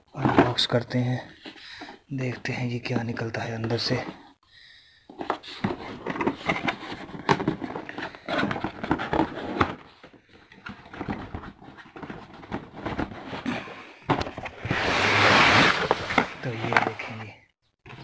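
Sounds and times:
cardboard box being handled: 5.1s - 17.2s
packaging scraping and rubbing: 5.2s - 17.2s.

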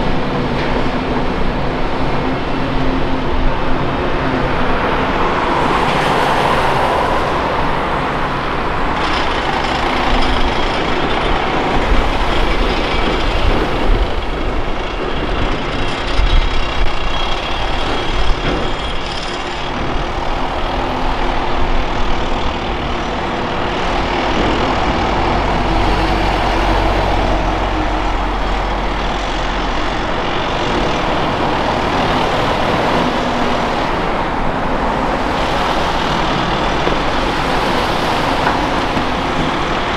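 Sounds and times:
diesel engines under load: 0.0s - 39.9s
excavator loading dirt and rocks: 8.0s - 39.9s
knocks and clatter: 8.5s - 20.6s, 35.4s - 39.9s.

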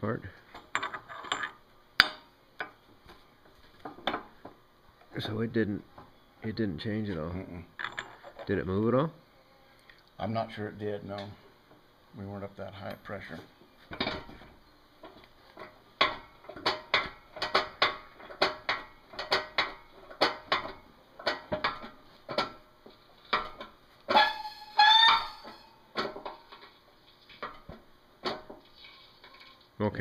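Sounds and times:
pump valve squeaks: 24.1s - 25.7s
long rising squeal: 24.2s - 25.7s.

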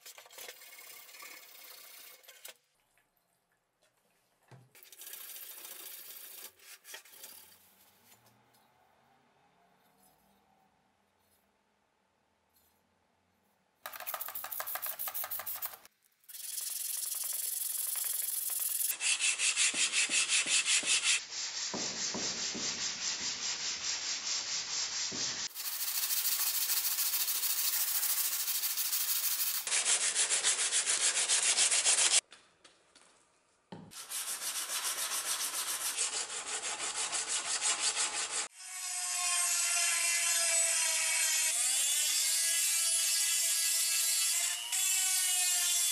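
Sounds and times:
blade rubbing on sandpaper: 13.9s - 32.2s, 34.0s - 38.5s.

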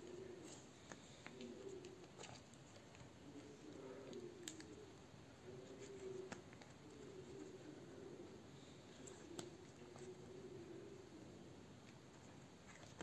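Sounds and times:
faint clicks and paper sounds: 0.0s - 13.0s.

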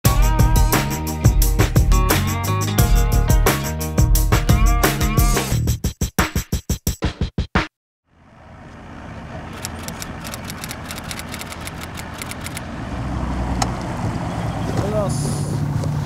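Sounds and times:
outdoor background noise: 8.1s - 16.0s
typewriter-like clicks: 9.6s - 12.6s.

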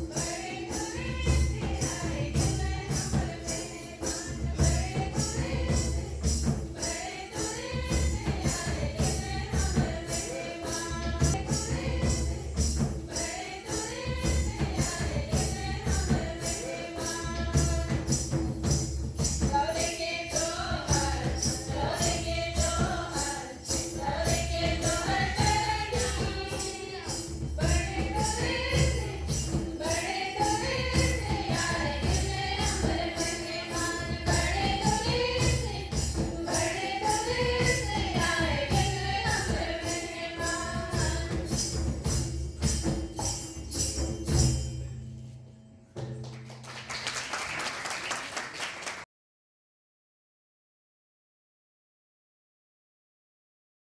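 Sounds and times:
women singing together: 0.0s - 18.5s, 19.2s - 41.9s
tambourine jingling: 0.0s - 47.3s
applause: 46.0s - 49.1s.

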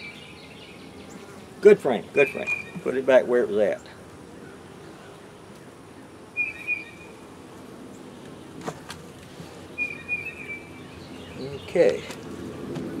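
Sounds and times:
honeybees buzzing: 0.0s - 13.0s
bird whistling: 2.2s - 2.8s, 6.4s - 7.2s, 9.7s - 11.4s.

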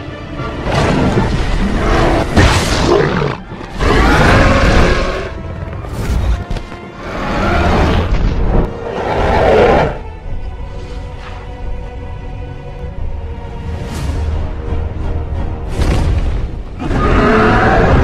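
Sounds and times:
dramatic music with deep booms: 0.0s - 18.0s.

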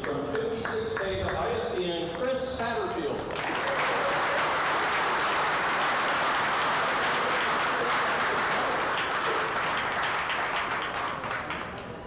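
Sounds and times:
audience applauding: 3.3s - 12.0s.

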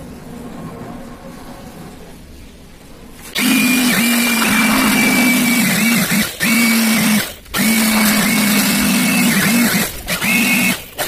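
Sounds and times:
electric air blower humming: 3.4s - 10.8s.

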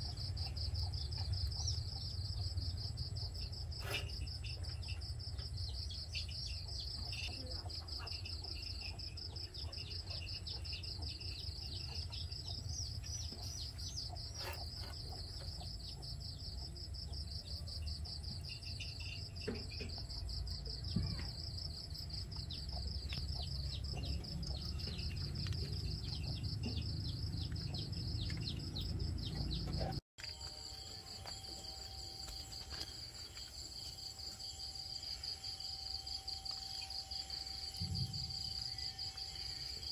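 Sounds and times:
crickets trilling: 30.2s - 39.9s.

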